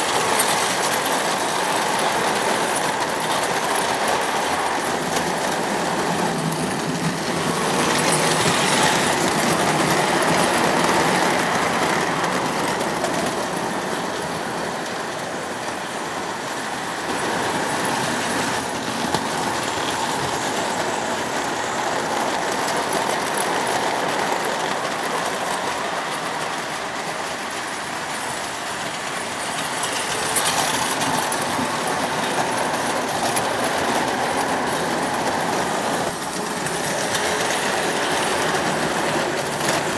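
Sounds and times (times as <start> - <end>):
model train wheels rumbling on rails: 0.0 - 39.9.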